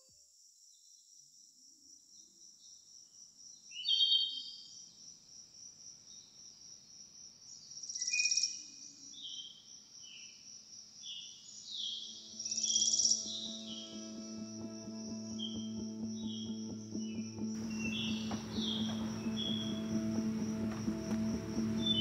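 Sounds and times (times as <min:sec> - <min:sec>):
insects trilling: 0:06.1 - 0:22.0
bird calls: 0:17.6 - 0:22.0.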